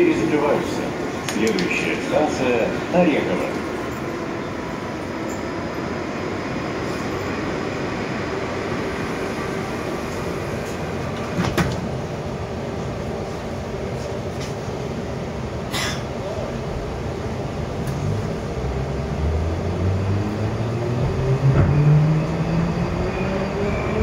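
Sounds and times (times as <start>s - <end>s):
sliding train doors closing: 0.0s - 7.9s, 8.6s - 14.9s, 20.7s - 24.0s
train hum: 0.0s - 24.0s.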